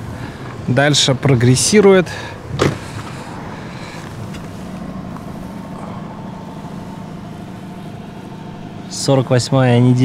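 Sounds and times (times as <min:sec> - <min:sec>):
car engine idling: 0:00.0 - 0:10.0
low hum: 0:02.4 - 0:10.0.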